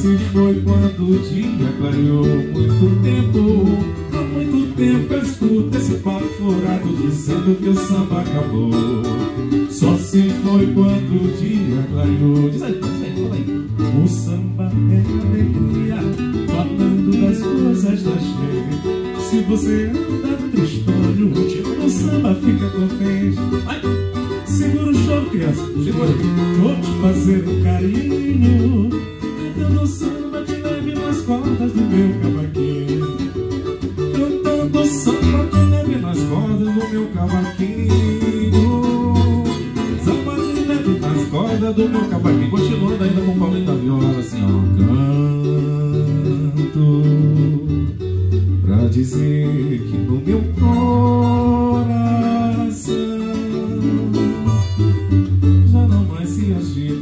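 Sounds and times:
acoustic guitar and cavaquinho samba: 0:00.0 - 0:57.0
man singing into a microphone: 0:00.0 - 0:57.0.

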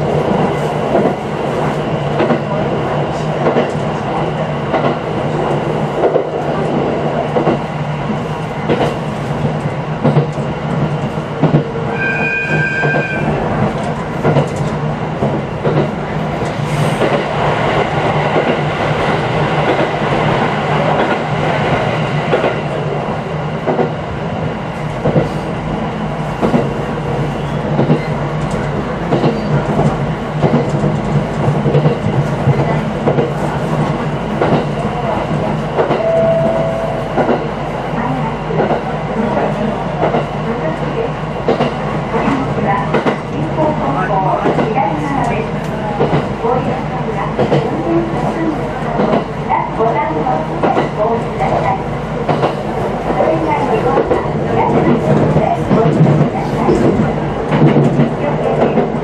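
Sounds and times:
electric train hum: 0:00.0 - 0:59.0
brief pitched tone: 0:36.0 - 0:37.2.

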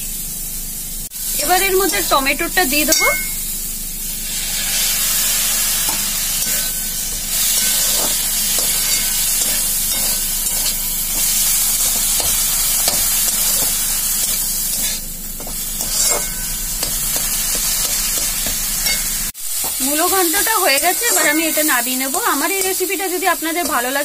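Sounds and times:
vegetables sizzling in oil: 0:00.0 - 0:24.0
metal spatula scraping pan: 0:05.9 - 0:17.2, 0:20.4 - 0:22.8.

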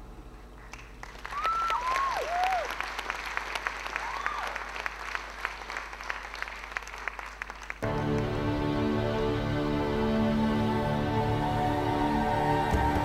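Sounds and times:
audience applauding: 0:00.6 - 0:08.7.

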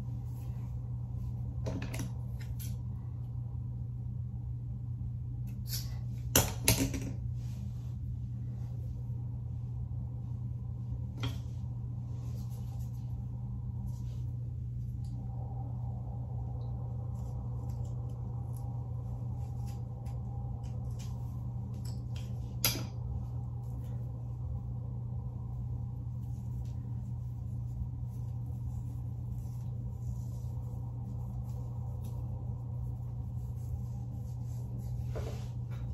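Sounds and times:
steady low hum: 0:00.0 - 0:35.9
hair strands rustling: 0:10.4 - 0:15.6, 0:16.7 - 0:35.9.

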